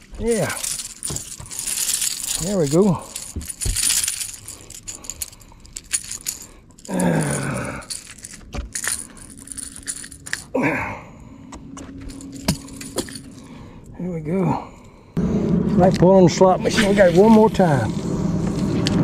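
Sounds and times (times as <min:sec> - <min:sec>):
lure rattles and hooks jangling: 0:00.0 - 0:10.6, 0:11.9 - 0:13.6.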